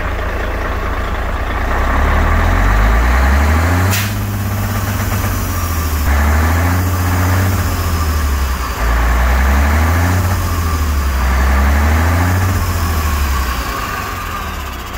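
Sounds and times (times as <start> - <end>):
diesel truck engine idling: 0.0 - 14.9.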